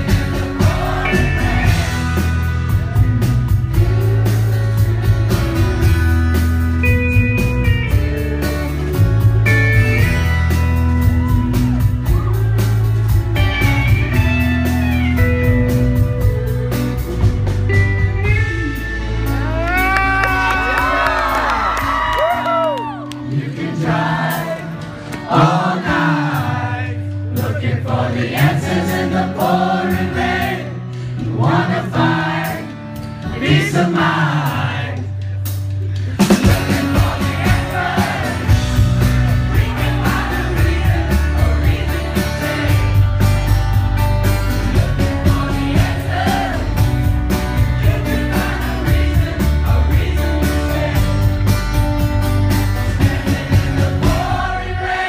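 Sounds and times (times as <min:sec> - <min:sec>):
man singing lead vocal: 0:00.0 - 0:02.2, 0:23.2 - 0:35.2, 0:36.2 - 0:43.0, 0:44.6 - 0:51.5, 0:52.8 - 0:55.0
drums: 0:00.0 - 0:55.0
live rock band: 0:00.0 - 0:55.0.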